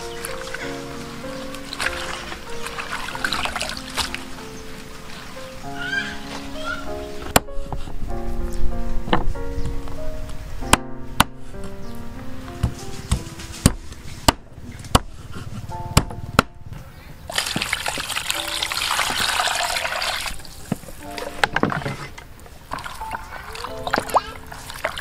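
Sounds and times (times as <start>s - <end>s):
water sloshing as hands wash: 0.0s - 5.4s, 17.3s - 25.0s
soft background music: 0.0s - 14.9s, 15.5s - 17.0s, 18.0s - 25.0s
water pouring into plastic basin: 1.6s - 4.3s, 17.3s - 25.0s.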